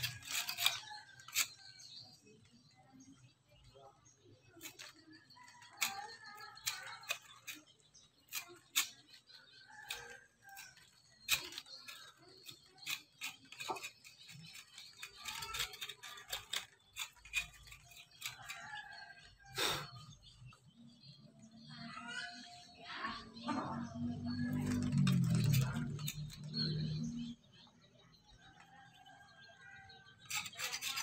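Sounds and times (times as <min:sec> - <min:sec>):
knife scraping coconut husk: 0:00.0 - 0:01.7, 0:04.6 - 0:20.0, 0:24.4 - 0:27.0, 0:30.2 - 0:31.0.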